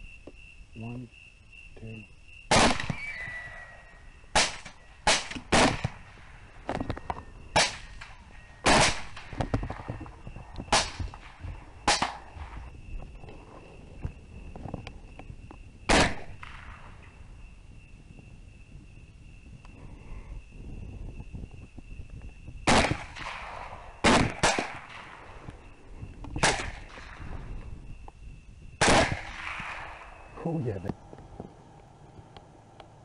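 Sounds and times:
high insect chirp: 0.0 - 33.0
rifle shots: 2.5 - 3.2, 4.3 - 6.1, 7.5 - 9.9, 10.7 - 12.6, 15.9 - 17.0, 22.6 - 25.4, 26.4 - 27.3, 28.8 - 30.2.

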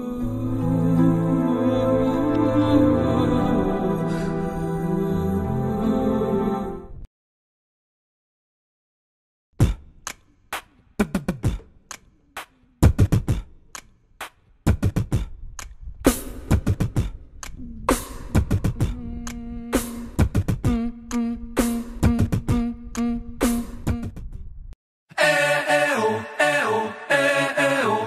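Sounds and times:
beatbox percussion beat: 9.6 - 24.4.

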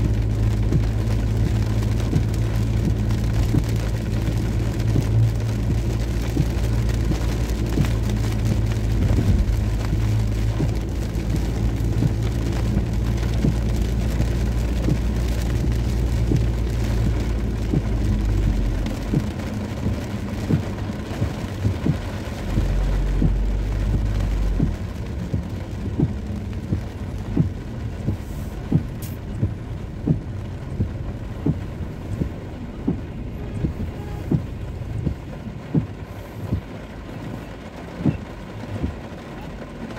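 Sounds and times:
car engine and tyres droning: 0.0 - 39.9
rain on windscreen: 0.0 - 39.9.

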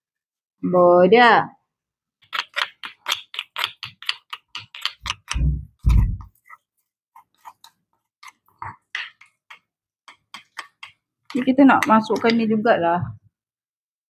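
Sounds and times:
stone pestle clacking in mortar: 2.2 - 6.3, 7.2 - 12.5
spoon knocking mortar: 2.2 - 6.6, 7.2 - 12.6.

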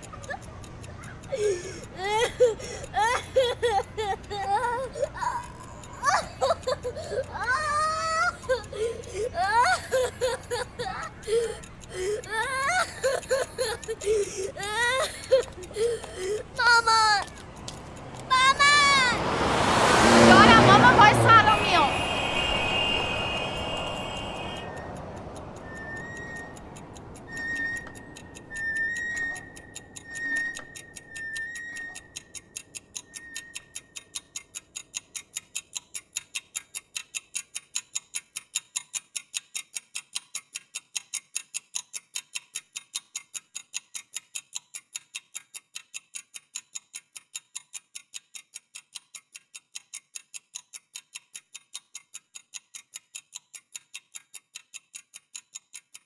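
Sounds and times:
mechanical ticking: 0.0 - 56.0.

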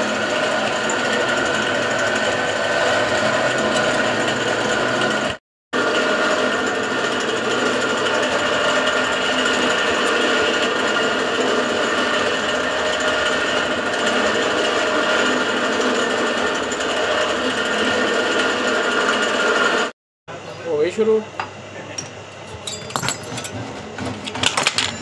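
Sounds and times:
drill press grinding through rivets: 22.0 - 25.0.

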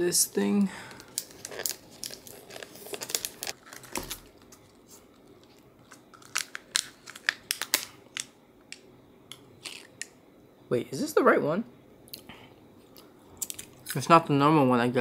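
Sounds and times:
plastic packaging crackling: 0.9 - 8.3.

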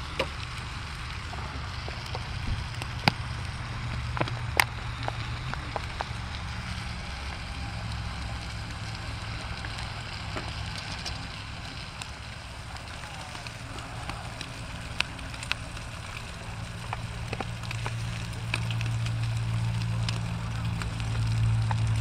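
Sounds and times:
steady low rumble: 0.0 - 22.0
vegetables sizzling in oil: 0.0 - 22.0.

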